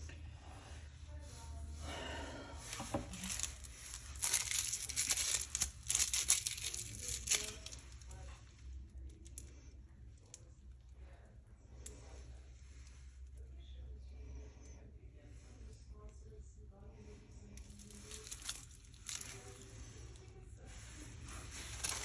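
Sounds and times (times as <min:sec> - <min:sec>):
plastic bag crinkling: 0:02.9 - 0:08.3, 0:17.6 - 0:22.0.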